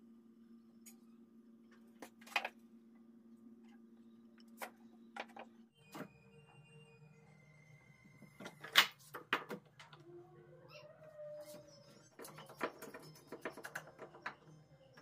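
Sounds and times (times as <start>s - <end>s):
faint tonal squeak: 4.0s - 8.8s, 9.9s - 15.0s.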